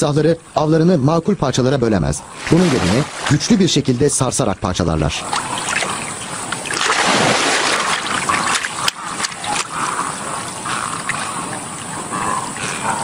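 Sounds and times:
water splashing and sloshing: 0:02.3 - 0:04.0, 0:05.1 - 0:13.0
water dripping: 0:05.2 - 0:12.7.

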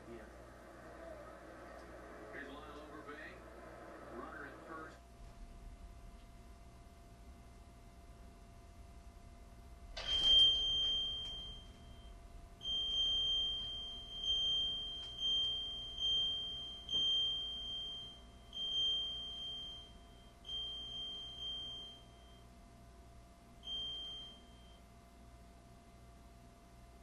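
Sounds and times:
high-pitched alarm beeping: 0:10.0 - 0:22.5, 0:23.6 - 0:24.9.

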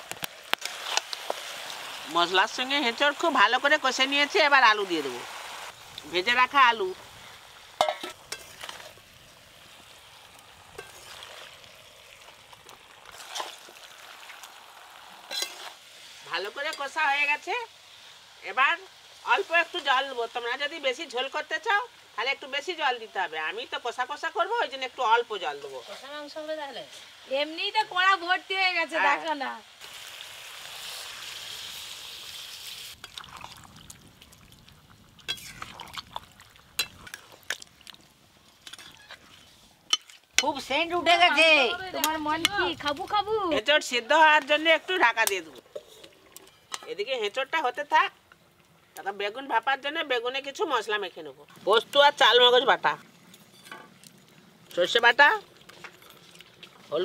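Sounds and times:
food sizzling in a pan: 0:00.0 - 0:57.0
water pouring into metal pot: 0:06.6 - 0:15.8, 0:29.8 - 0:38.0
metal ladle scraping: 0:07.8 - 0:09.0, 0:10.7 - 0:11.5, 0:15.3 - 0:15.8, 0:35.3 - 0:36.0, 0:38.6 - 0:40.6, 0:45.2 - 0:47.0.

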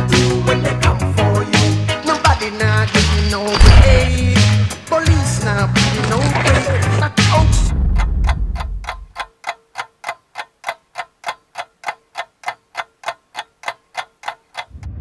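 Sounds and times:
music: 0:00.0 - 0:09.2, 0:14.7 - 0:15.0
quick even ticking: 0:08.0 - 0:14.8.

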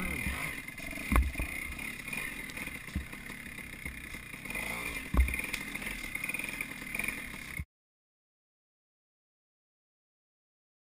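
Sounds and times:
dull thumps: 0:00.0 - 0:04.2, 0:04.9 - 0:06.1
dirt bike engine running: 0:00.0 - 0:07.7.

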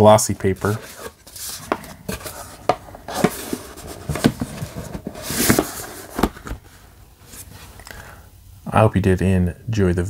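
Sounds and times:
paper and card rustling: 0:00.3 - 0:06.7.

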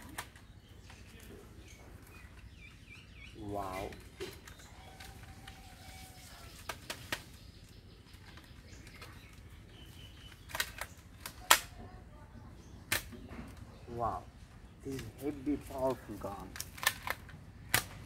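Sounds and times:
plastic toy gun clicks: 0:10.3 - 0:11.8, 0:12.9 - 0:13.2, 0:16.5 - 0:18.0.

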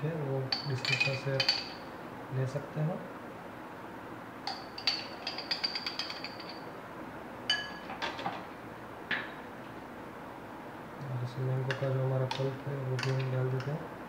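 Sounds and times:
metal spoon clinking against glass: 0:00.5 - 0:01.8, 0:04.5 - 0:06.6, 0:07.5 - 0:07.9.

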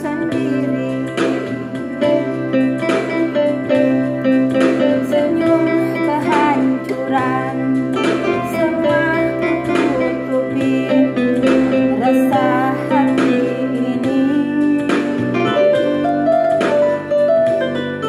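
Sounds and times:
person singing: 0:00.0 - 0:16.1
electronic keyboard chords: 0:00.0 - 0:18.0
plucked guitar-like accompaniment: 0:00.0 - 0:18.0.

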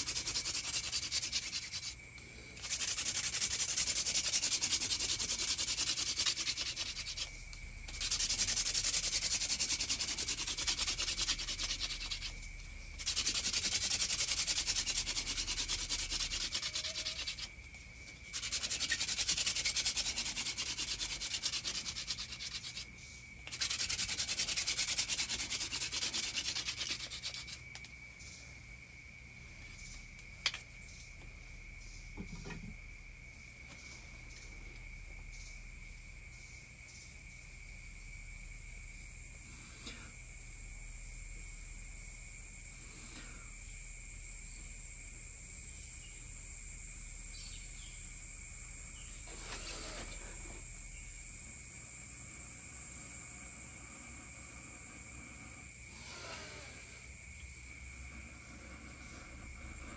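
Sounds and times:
wooden hand drill rasping: 0:00.0 - 0:02.0, 0:02.6 - 0:07.3, 0:07.9 - 0:12.3, 0:13.0 - 0:17.5, 0:18.3 - 0:22.8, 0:23.4 - 0:27.6, 0:49.2 - 0:50.4.

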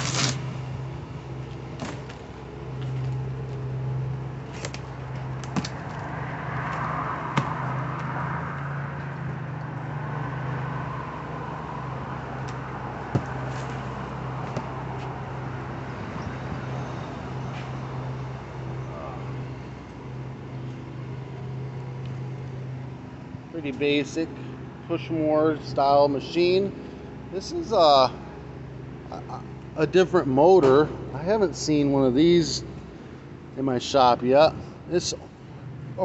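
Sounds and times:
cardboard and tape rustling and tearing: 0:00.0 - 0:00.4
steady low hum: 0:00.0 - 0:36.0.

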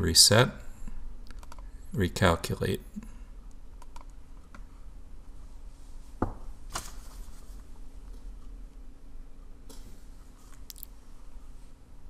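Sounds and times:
low electrical hum: 0:00.0 - 0:12.0
computer mouse clicks: 0:01.2 - 0:01.7, 0:03.5 - 0:04.7, 0:10.5 - 0:10.9.

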